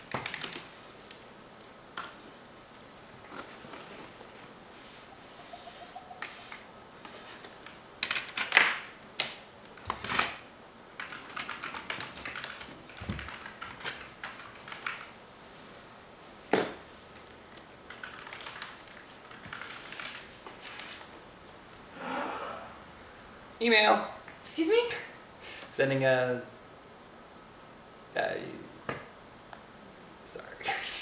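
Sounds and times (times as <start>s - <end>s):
typing on keyboards: 0.1s - 0.7s, 11.0s - 15.1s, 17.9s - 21.3s.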